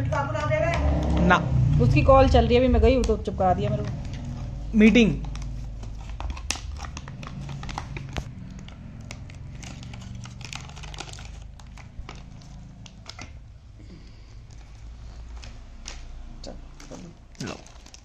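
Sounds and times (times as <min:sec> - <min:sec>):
plastic packaging crinkling: 0:04.0 - 0:13.4, 0:14.5 - 0:18.0.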